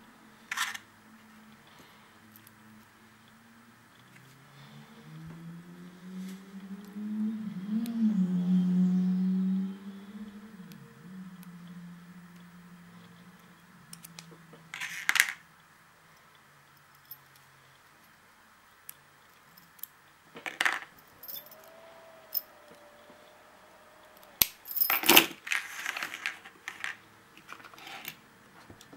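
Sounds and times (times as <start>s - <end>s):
padlock and metal picks clinking: 16.2s - 18.2s, 19.2s - 20.0s, 20.8s - 22.5s, 24.4s - 25.4s.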